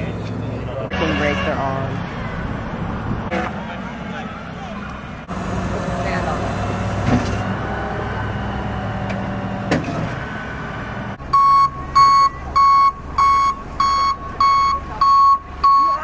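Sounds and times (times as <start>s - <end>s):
truck engine running: 0.0s - 16.0s
backup alarm beeping: 11.3s - 16.0s.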